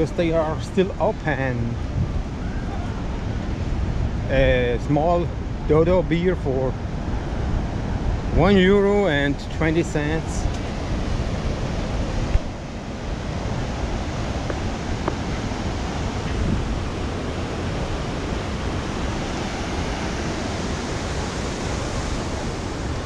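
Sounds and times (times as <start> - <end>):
wind on microphone: 0.0 - 6.0, 6.6 - 23.0
ocean surf breaking: 6.3 - 23.0.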